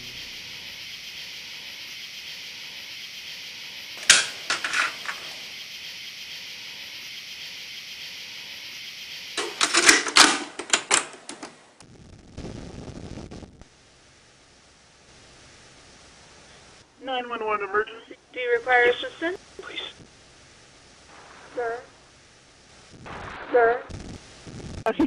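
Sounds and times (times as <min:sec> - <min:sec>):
steady tape hiss: 0:00.0 - 0:25.0
cassette tape plastic clicks: 0:09.4 - 0:11.6.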